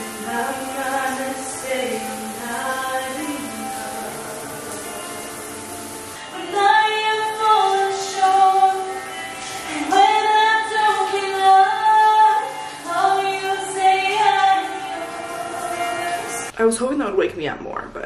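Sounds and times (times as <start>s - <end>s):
woman singing long held notes: 0.0s - 5.5s
music: 0.0s - 18.0s.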